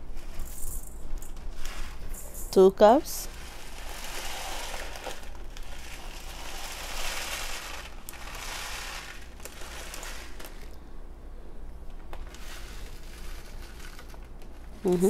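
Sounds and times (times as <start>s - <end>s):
plastic bag rustling: 0.0s - 10.8s, 12.1s - 15.0s
rice poured into steel bowl: 3.3s - 10.7s, 12.3s - 14.2s.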